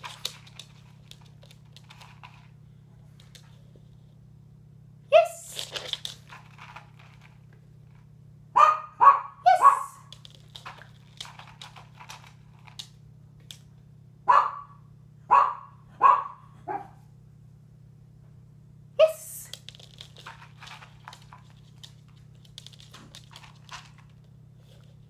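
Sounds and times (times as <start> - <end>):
small dog barking: 8.6 - 10.1, 14.2 - 17.0.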